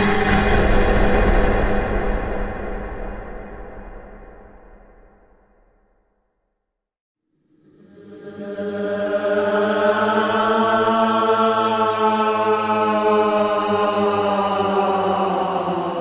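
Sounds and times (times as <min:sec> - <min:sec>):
droning chant-like note: 0:00.0 - 0:02.8, 0:07.4 - 0:16.0.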